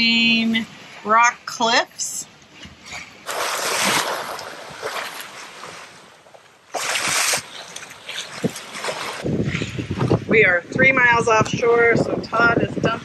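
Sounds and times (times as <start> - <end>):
water rushing along a boat hull: 2.4 - 13.0.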